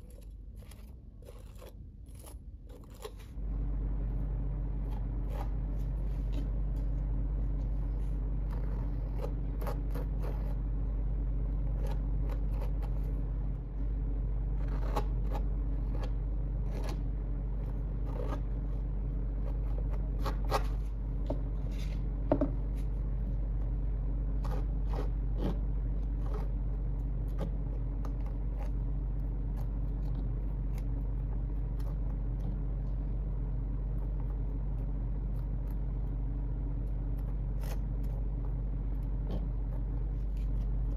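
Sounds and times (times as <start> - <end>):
palette knife scraping canvas: 0.0 - 3.4, 4.6 - 6.9, 7.6 - 10.9, 11.5 - 13.5, 14.5 - 21.0, 24.3 - 32.6, 37.2 - 40.9
low background hum: 0.0 - 40.9.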